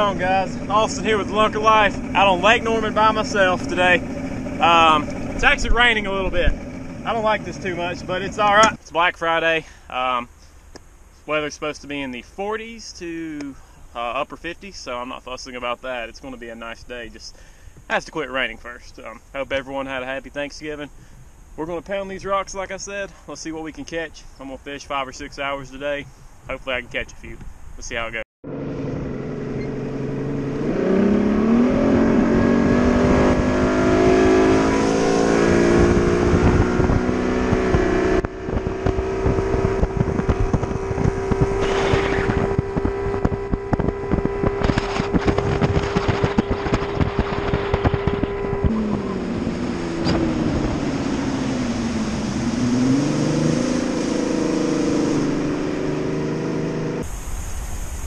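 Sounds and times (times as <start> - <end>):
outboard motor running: 0.0 - 8.8, 28.6 - 57.1
wind noise: 30.6 - 58.0.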